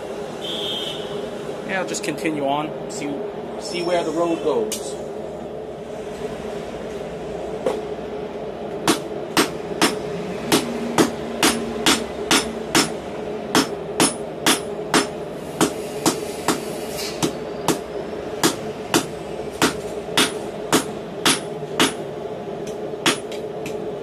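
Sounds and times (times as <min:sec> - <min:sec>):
hammer striking hot steel on anvil: 0:08.8 - 0:22.0, 0:22.6 - 0:23.8.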